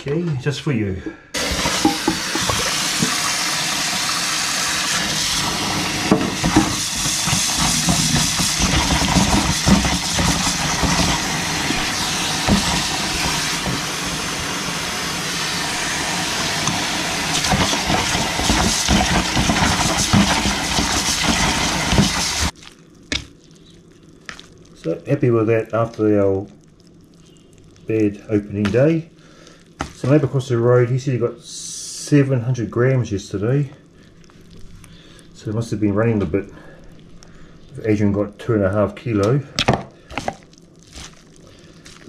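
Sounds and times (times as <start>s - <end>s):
tap water running into strainer: 1.4s - 22.5s.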